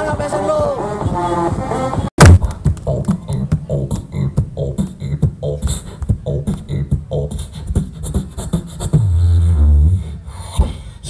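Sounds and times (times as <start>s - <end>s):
beatboxing into a microphone: 2.2s - 11.0s
deep bass drone: 8.9s - 11.0s.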